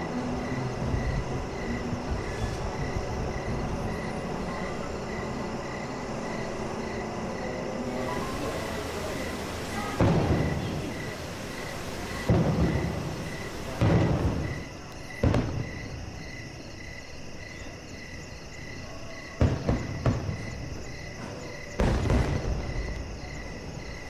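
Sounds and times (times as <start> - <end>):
distant fireworks booming: 7.9 - 16.5, 19.2 - 24.0.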